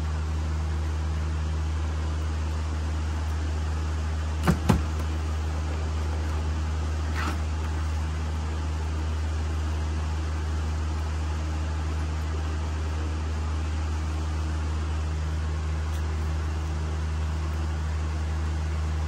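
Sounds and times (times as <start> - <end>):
steady low hum: 0.0 - 19.0
sharp knocks: 4.4 - 5.1.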